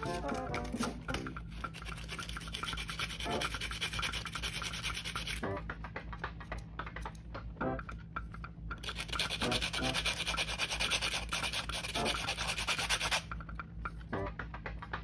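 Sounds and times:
sandpaper scrubbing plastic: 0:00.0 - 0:05.4, 0:08.8 - 0:13.3.

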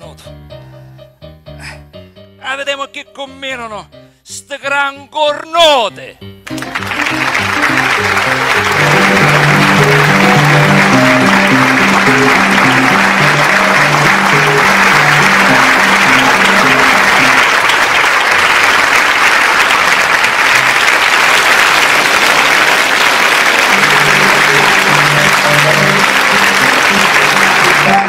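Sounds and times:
background music: 0:00.0 - 0:17.8, 0:23.5 - 0:28.0
audience applauding: 0:06.5 - 0:28.0.

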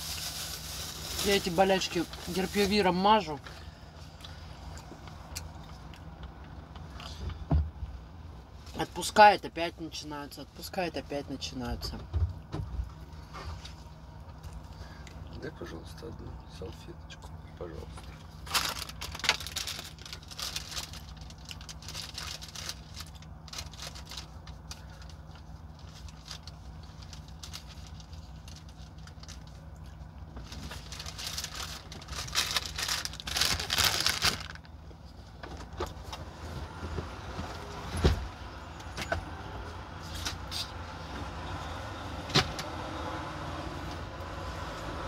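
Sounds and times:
plastic gloves rustling: 0:00.0 - 0:03.3, 0:18.3 - 0:34.8.

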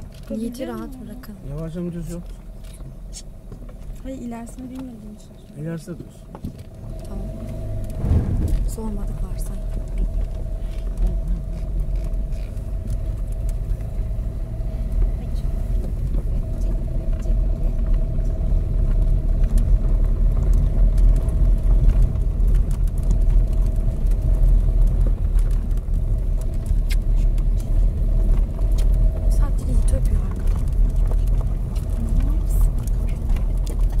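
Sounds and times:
car engine and tyres rumbling: 0:00.0 - 0:34.0
gravel ticking under tyres: 0:00.0 - 0:34.0.

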